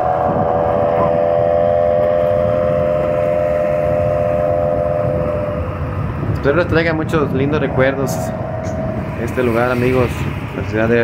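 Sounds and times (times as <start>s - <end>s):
road and wind rumble: 0.0s - 11.0s
vehicle engine cruising: 0.0s - 11.0s.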